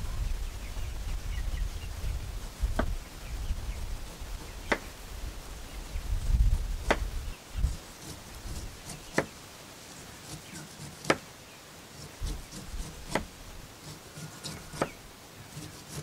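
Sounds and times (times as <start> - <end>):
knife chopping on wooden board: 10.8 - 11.2, 12.3 - 15.0.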